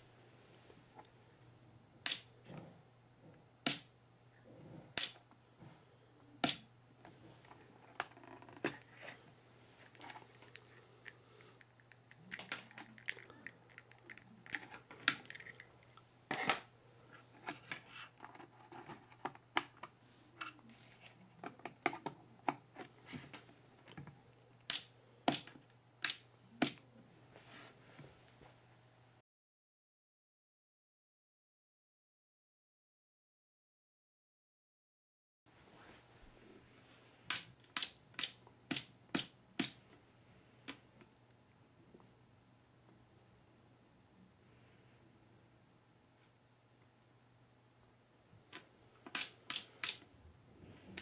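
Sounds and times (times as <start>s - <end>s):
faint steady hum: 0.0s - 29.2s, 35.5s - 51.0s
rustling of wires and connectors: 7.0s - 24.2s.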